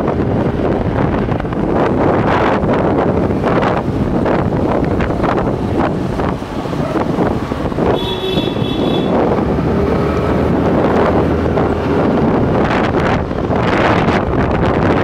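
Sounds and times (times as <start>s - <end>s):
tyre noise on road: 0.0s - 15.0s
wind buffeting microphone: 0.0s - 15.0s
scooter engine: 3.1s - 12.5s.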